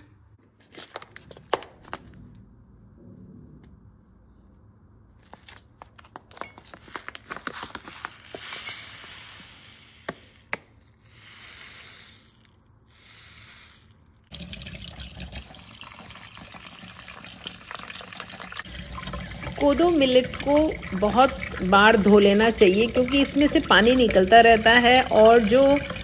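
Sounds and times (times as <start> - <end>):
grains pouring into steel bowl: 8.2 - 10.5
tap water splashing: 17.4 - 26.0.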